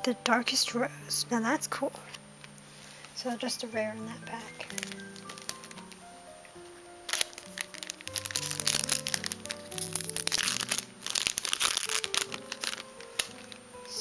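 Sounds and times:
background music: 0.0s - 14.0s
foil wrapper crinkling: 4.3s - 14.0s
cards sliding: 7.2s - 14.0s.

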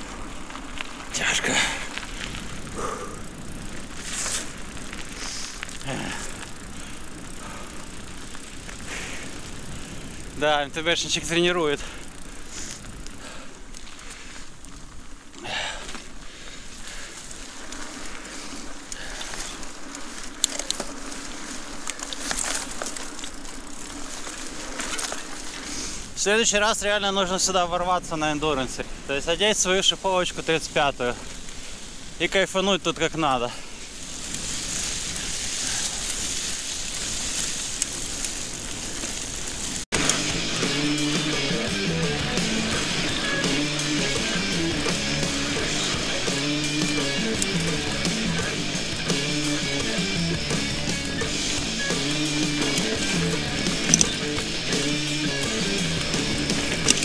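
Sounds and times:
bike tyres crunching on dirt: 0.0s - 57.0s
sharp click: 53.8s - 54.2s.

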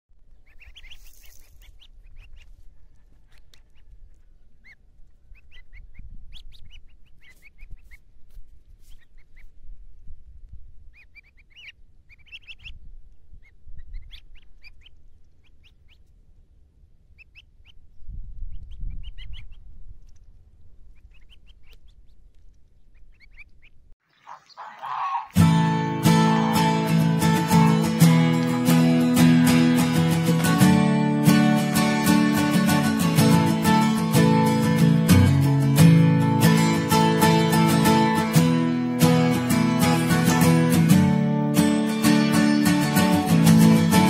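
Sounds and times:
goslings peeping: 0.3s - 8.1s, 8.9s - 9.6s, 10.9s - 16.2s, 17.1s - 19.6s, 20.9s - 30.2s.

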